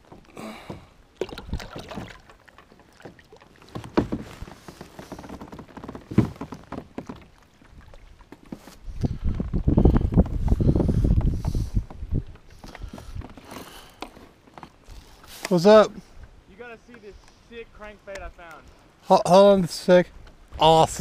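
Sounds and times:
water splashing and sloshing: 0.0 - 21.0
water rushing: 0.6 - 8.4
knocks against kayak hull: 3.6 - 7.2.

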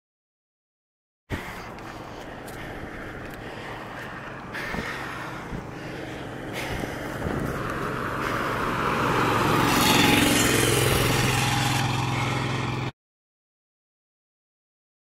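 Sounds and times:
tyre and wind noise: 1.3 - 12.0
vehicle engine running: 1.4 - 12.9.

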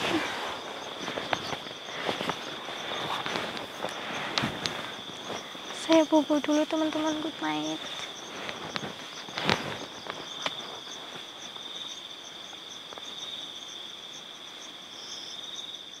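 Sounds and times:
night insects trilling: 0.0 - 16.0
clicks and rustles: 0.9 - 11.2.

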